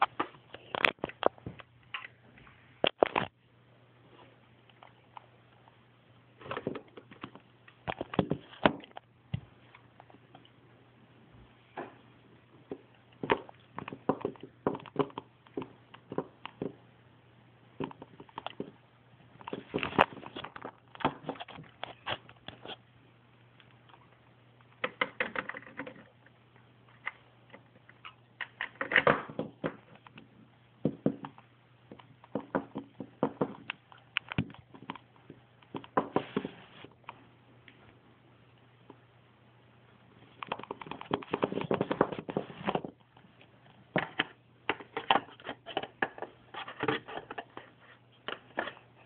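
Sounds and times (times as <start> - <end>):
faint steady hum: 0.0 - 49.0.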